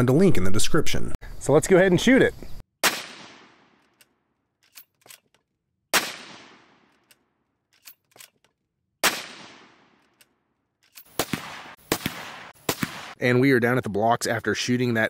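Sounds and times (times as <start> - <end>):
rifle shots with echo: 2.8 - 3.8, 5.9 - 7.0, 9.0 - 10.0, 11.1 - 13.2
rifle bolt clicks: 3.8 - 5.5, 6.8 - 8.6.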